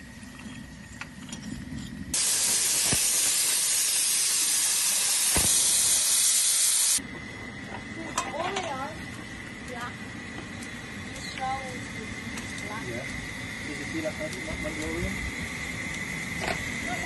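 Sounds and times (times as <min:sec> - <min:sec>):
loud steam hissing: 0:02.1 - 0:17.0
low steady hum: 0:07.0 - 0:17.0.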